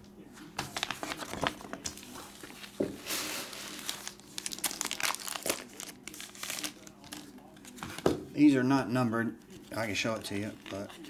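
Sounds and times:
plastic wrapper crinkling: 3.4s - 7.8s, 10.2s - 11.0s.

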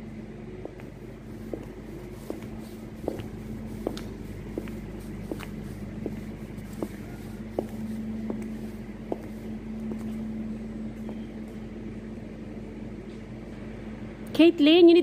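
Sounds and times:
steady low hum: 0.0s - 15.0s
footsteps on brick floor: 0.6s - 11.6s.

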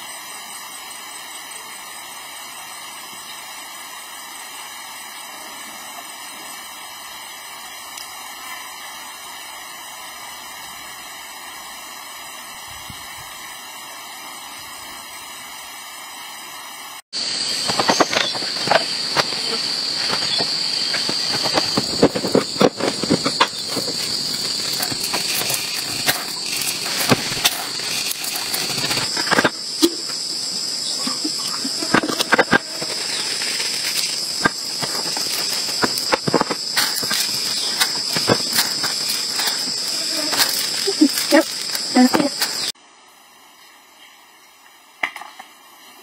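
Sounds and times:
high-pitched insect drone: 0.0s - 46.0s
steady hiss: 0.0s - 46.0s
footsteps through grass and brush: 32.6s - 42.7s.

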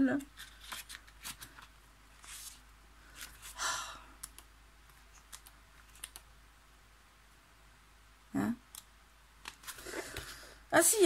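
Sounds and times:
paper pages rustling: 0.2s - 3.6s, 9.4s - 10.5s.

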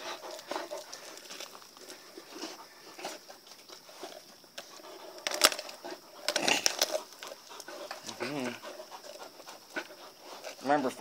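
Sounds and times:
dog crunching frozen chicken: 5.2s - 7.4s.

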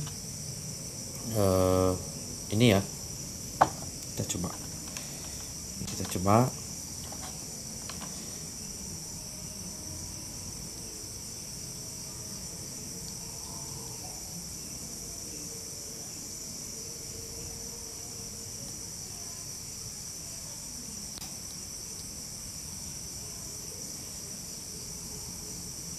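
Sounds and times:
insects chirring: 0.0s - 25.9s.

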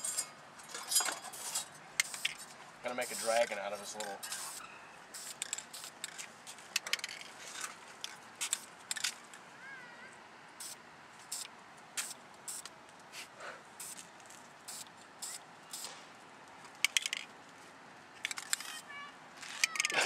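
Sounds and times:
spray paint can hissing: 2.0s - 6.2s, 8.4s - 9.0s, 10.6s - 12.7s, 13.8s - 14.0s, 14.6s - 16.0s.

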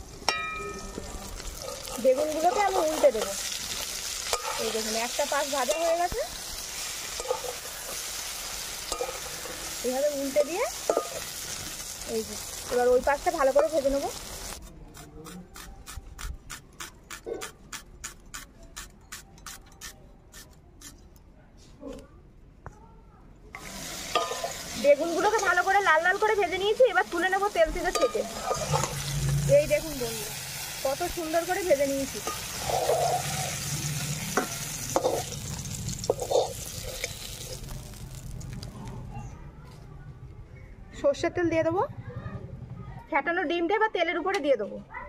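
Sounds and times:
hot oil sizzling in a wok: 0.0s - 14.6s, 23.6s - 38.8s
metal spatula clinking: 0.3s - 6.0s, 7.0s - 11.4s, 24.1s - 25.7s, 27.8s - 29.3s, 31.7s - 37.7s.

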